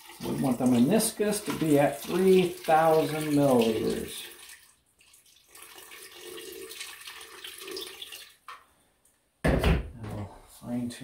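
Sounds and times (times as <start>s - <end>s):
water pouring onto ice: 0.0s - 8.4s.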